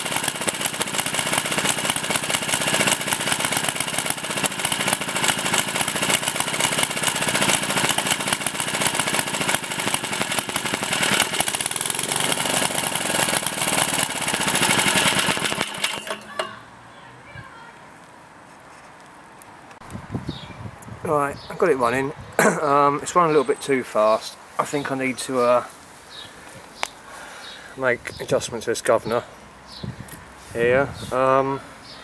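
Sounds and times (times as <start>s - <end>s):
small petrol engine running: 0.0s - 16.7s.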